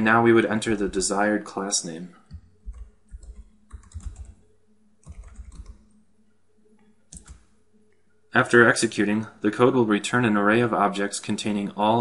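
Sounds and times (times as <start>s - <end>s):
typing on computer keyboard: 2.3s - 4.4s, 5.0s - 5.9s, 7.1s - 7.4s.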